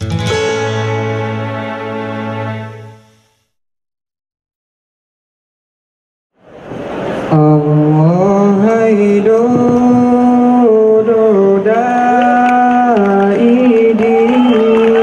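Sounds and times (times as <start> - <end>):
man chanting unaccompanied: 7.3 - 15.0.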